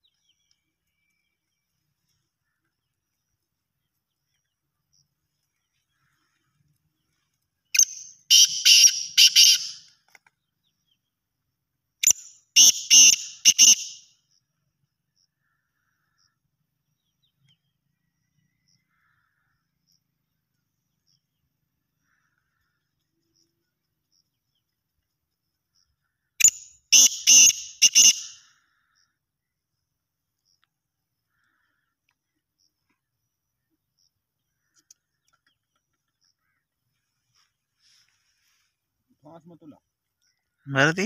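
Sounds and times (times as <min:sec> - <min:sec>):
bird calling rasping notes: 0:07.7 - 0:09.9, 0:12.0 - 0:14.1, 0:26.4 - 0:28.6.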